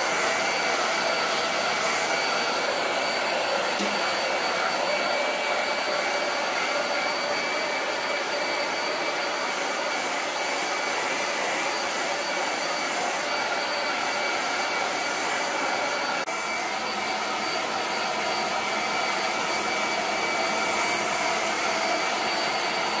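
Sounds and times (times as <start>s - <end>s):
hair dryer running with whine: 0.0s - 23.0s.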